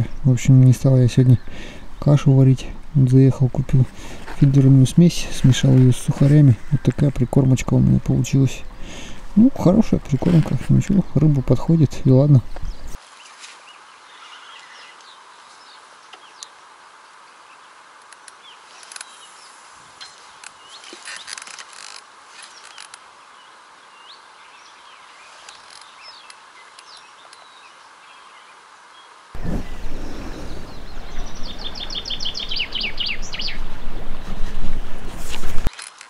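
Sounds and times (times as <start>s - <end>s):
small birds chirping: 0.0s - 21.5s, 22.4s - 34.9s
outdoor hiss: 0.0s - 36.0s.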